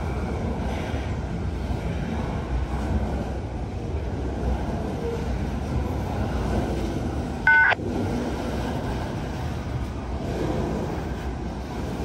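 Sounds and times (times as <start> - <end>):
freight train rumbling on rails: 0.0 - 12.0
loud high multi-tone beep: 7.5 - 7.8.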